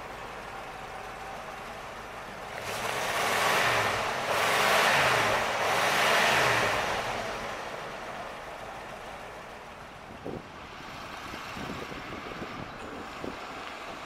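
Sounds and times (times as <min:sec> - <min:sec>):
car engine revving: 0:00.0 - 0:09.6.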